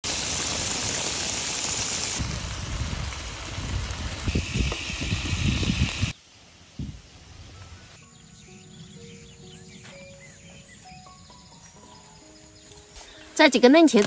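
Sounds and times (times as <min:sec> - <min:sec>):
food sizzling in a pan: 0:00.0 - 0:06.2.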